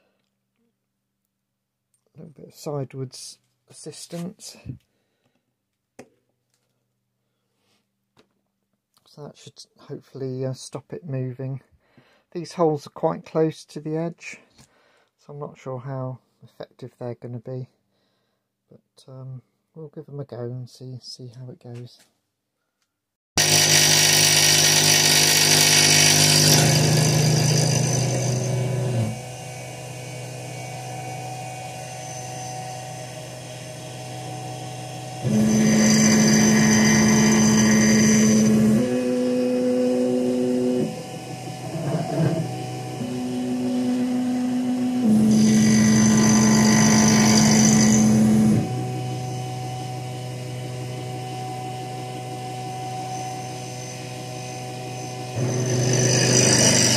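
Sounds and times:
milling machine spindle humming: 23.4 - 56.9
high-pitched hissing metal cutting: 29.4 - 39.4, 52.3 - 56.9.

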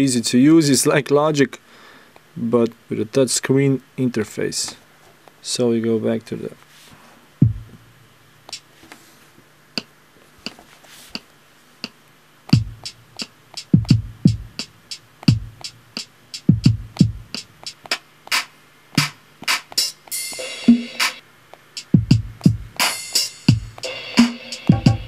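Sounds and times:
kick drum thumps: 7.4 - 7.8, 12.6 - 12.9, 13.7 - 14.6, 15.2 - 15.7, 16.5 - 17.4, 22.0 - 22.8, 23.5 - 23.8, 24.7 - 25.0
snare hits: 17.6 - 21.2.

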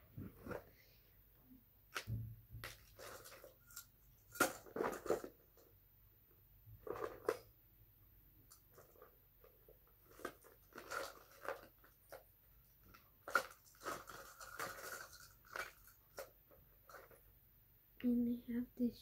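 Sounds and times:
plastic beads clicking and rattling: 10.0 - 12.2, 12.8 - 17.1.

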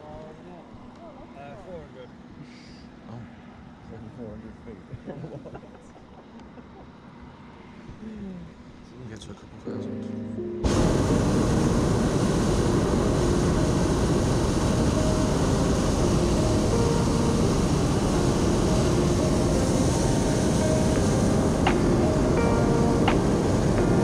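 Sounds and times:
hot-air balloon burner roaring: 10.6 - 24.0.

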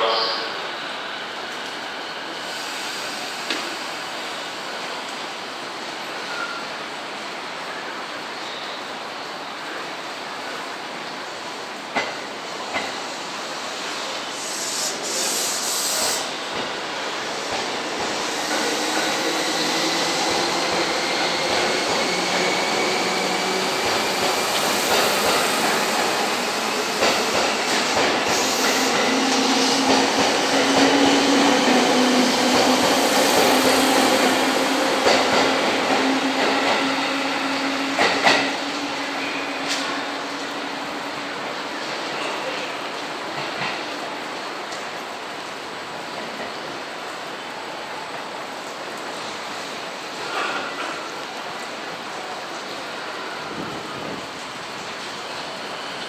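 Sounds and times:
train rolling: 11.7 - 45.1.

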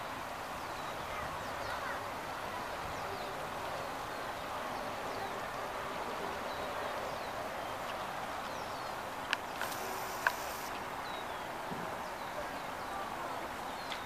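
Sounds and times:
small birds chirping faintly: 0.0 - 14.0
steady background hush: 2.1 - 13.7
sharp clicks: 9.3 - 10.8.

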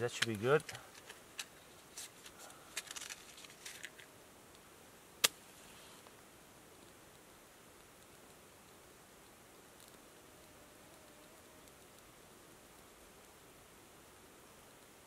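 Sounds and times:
matchbox rustling and clicking: 0.0 - 4.6
match striking: 5.2 - 6.1
match flaring hiss: 5.2 - 10.2.

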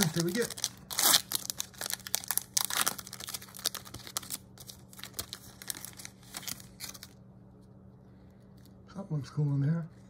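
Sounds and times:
foil wrapper crinkling and tearing: 0.0 - 7.2.

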